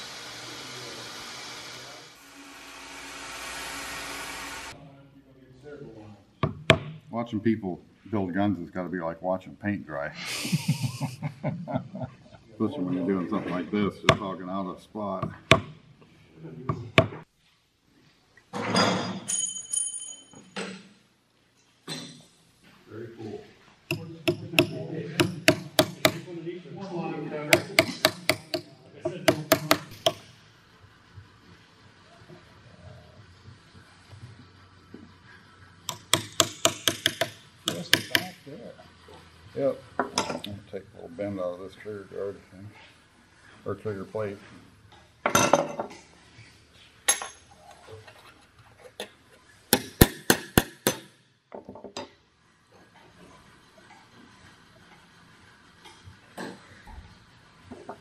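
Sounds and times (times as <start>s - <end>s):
metal clink: 18.8s - 20.9s
hammer tapping a chisel: 23.9s - 26.2s, 27.5s - 30.3s, 35.9s - 38.4s, 49.7s - 51.8s.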